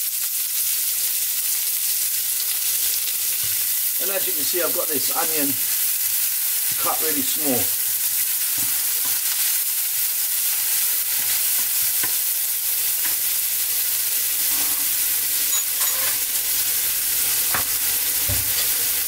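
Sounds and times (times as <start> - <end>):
onion sizzling in oil: 0.0 - 19.0
spatula scraping a pan: 14.3 - 16.4.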